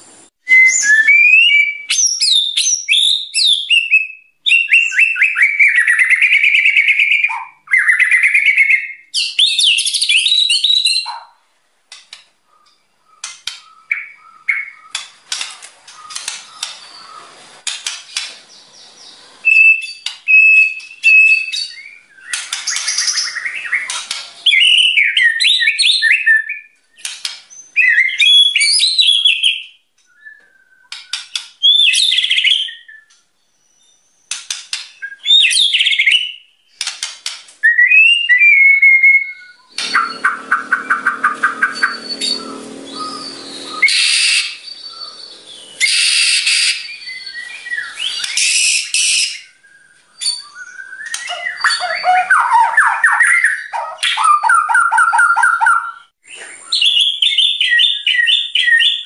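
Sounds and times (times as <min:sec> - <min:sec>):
lower buzzy bird song: 0:00.0 - 0:11.4, 0:12.3 - 0:36.9, 0:37.6 - 0:59.0
bird singing whistled phrases: 0:00.4 - 0:11.2, 0:19.4 - 0:34.3, 0:35.0 - 0:36.4, 0:37.6 - 0:59.0.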